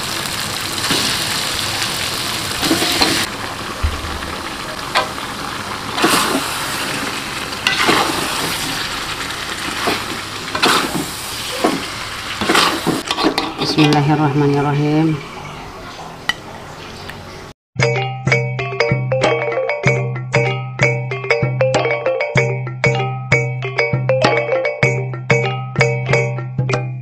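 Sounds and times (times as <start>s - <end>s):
paste sizzling in a wok: 0.0s - 13.4s
metal spatula scraping a pan: 2.6s - 3.3s, 7.6s - 8.7s, 9.8s - 14.0s.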